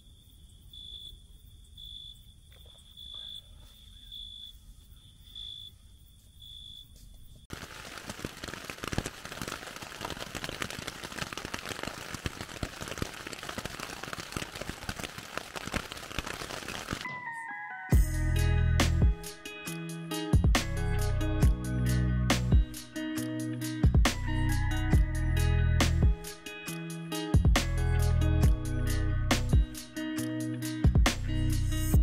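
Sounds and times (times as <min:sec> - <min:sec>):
crickets chirping: 0:00.0 - 0:08.0
dense crackling noise: 0:07.5 - 0:17.1.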